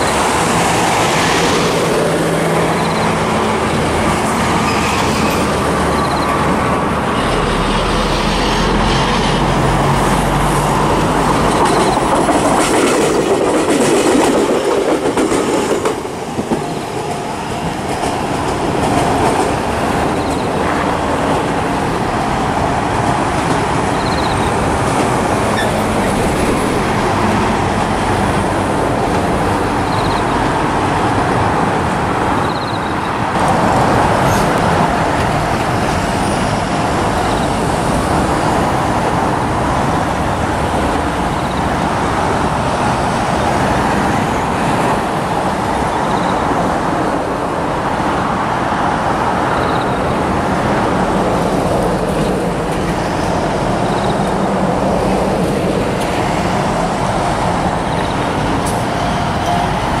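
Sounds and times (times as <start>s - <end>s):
road traffic noise: 0.0s - 60.0s
level crossing warning bell: 59.0s - 60.0s.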